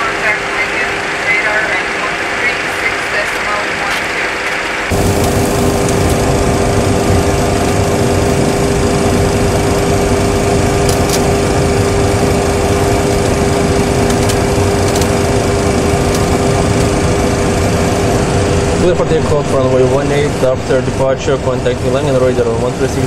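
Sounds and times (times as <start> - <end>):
cockpit engine drone: 0.0 - 23.0.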